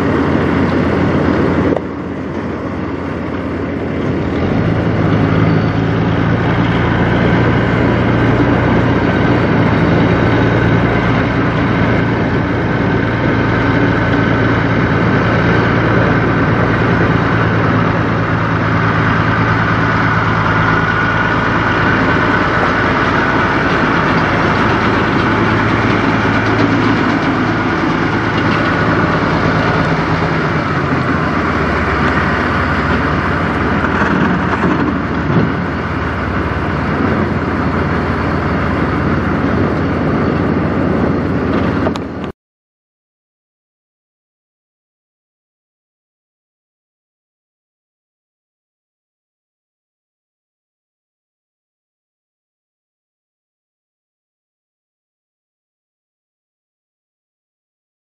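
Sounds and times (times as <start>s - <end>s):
truck diesel engine running: 0.0s - 42.3s.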